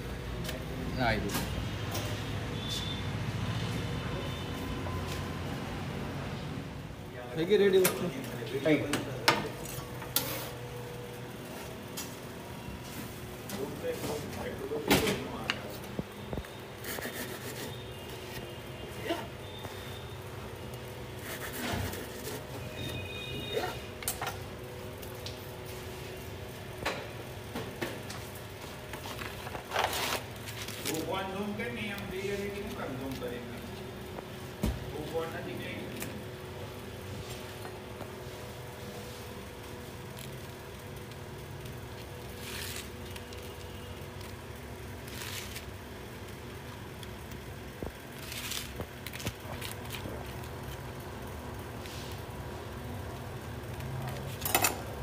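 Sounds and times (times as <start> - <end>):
steady background hum: 0.0 - 55.0
hissing scrapes: 16.8 - 17.9.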